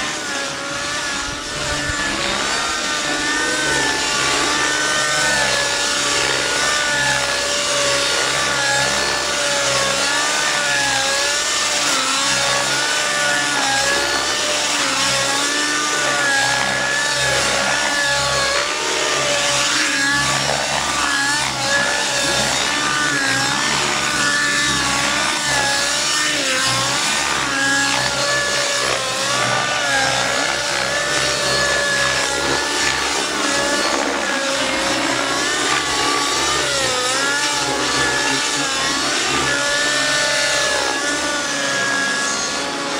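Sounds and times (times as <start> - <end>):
model helicopter engine and rotor: 0.0 - 42.9.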